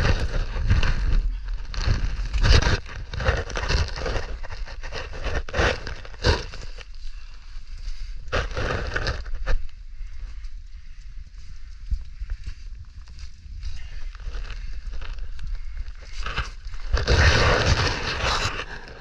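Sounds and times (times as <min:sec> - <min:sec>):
camera rubbing and bumping: 0:00.0 - 0:06.9, 0:08.3 - 0:09.6, 0:14.1 - 0:19.0
crawling over rock and leaves: 0:00.0 - 0:19.0.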